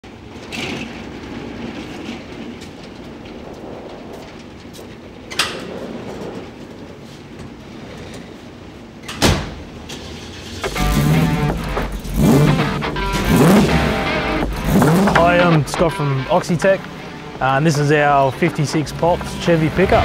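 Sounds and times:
metal roller shutter rattling: 0.1s - 9.0s, 9.6s - 16.0s.

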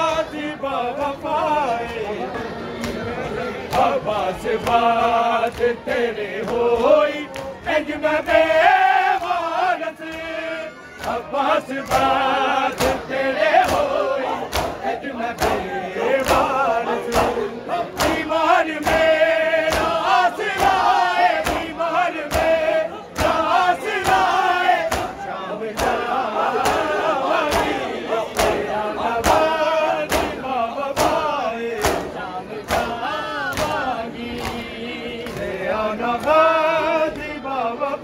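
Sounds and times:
group of men chanting: 0.0s - 38.0s
hands slapping bare chests: 13.6s - 13.9s, 14.5s - 14.8s, 18.0s - 19.1s, 19.7s - 22.6s, 23.2s - 25.2s, 30.1s - 30.4s, 31.0s - 32.1s.

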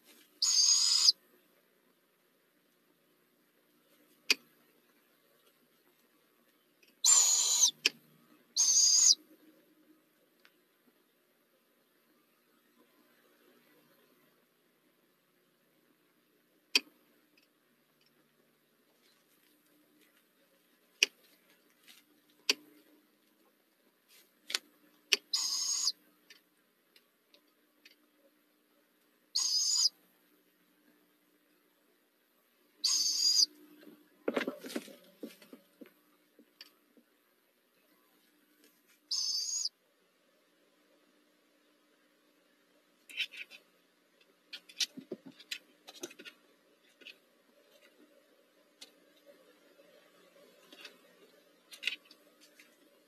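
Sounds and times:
owlets hissing screeches: 0.4s - 1.1s, 7.0s - 7.8s, 25.3s - 25.9s.

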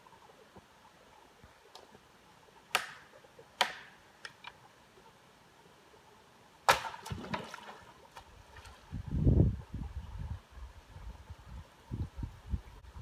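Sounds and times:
sticks and branches cracking: 2.7s - 4.6s.

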